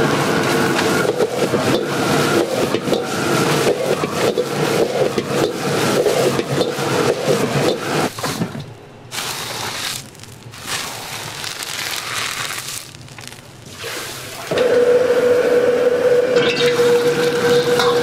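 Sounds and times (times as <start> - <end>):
wok burner humming: 0.0 - 18.0
metal ladle scraping wok: 16.4 - 18.0.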